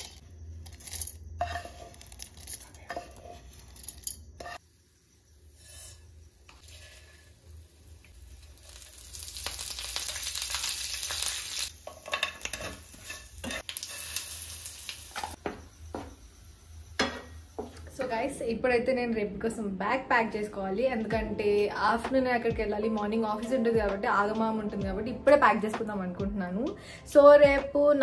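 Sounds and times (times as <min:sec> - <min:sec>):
hot oil sizzling in a pan: 0:04.5 - 0:15.7.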